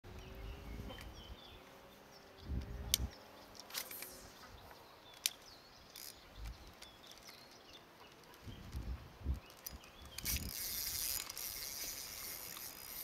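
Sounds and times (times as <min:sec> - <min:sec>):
small birds chirping: 0:00.1 - 0:13.0
gear clicks and bumps: 0:05.0 - 0:13.0.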